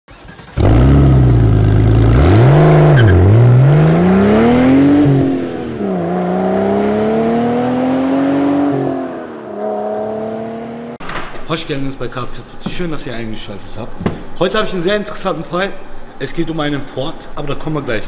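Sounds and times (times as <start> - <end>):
car engine starting and revving: 0.1 - 11.0.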